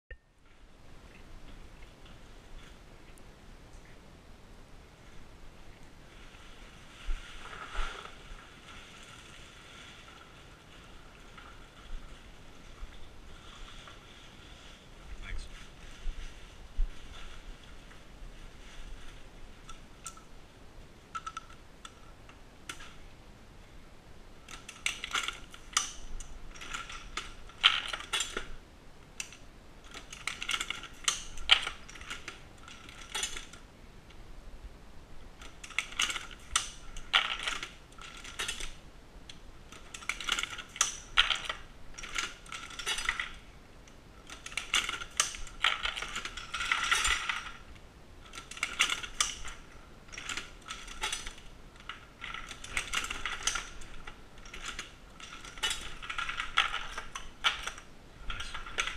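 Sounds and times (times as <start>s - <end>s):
reloading press metallic clicking: 29.2s - 33.6s, 44.2s - 47.6s, 48.2s - 58.9s.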